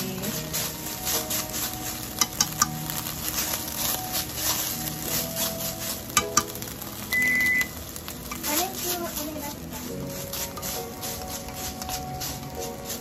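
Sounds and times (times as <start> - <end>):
chopsticks scraping meat in a pan: 0.0 - 13.0
chopsticks clicking against pan: 1.4 - 3.6, 6.1 - 9.2
short high beep: 7.1 - 7.7.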